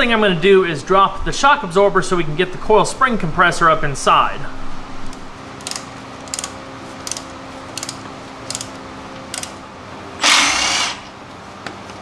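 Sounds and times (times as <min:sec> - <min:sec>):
socket ratchet clicking: 0:05.6 - 0:09.6
impact wrench burst: 0:10.2 - 0:11.2.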